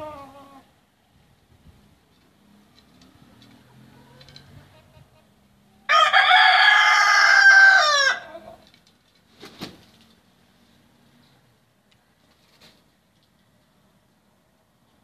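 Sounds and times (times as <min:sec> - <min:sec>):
rooster crowing: 0:05.9 - 0:08.6.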